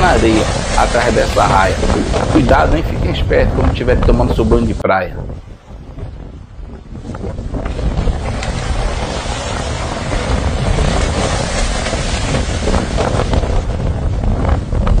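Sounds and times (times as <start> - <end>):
waves breaking on shore: 0.0 - 15.0
wind buffeting microphone: 0.0 - 15.0.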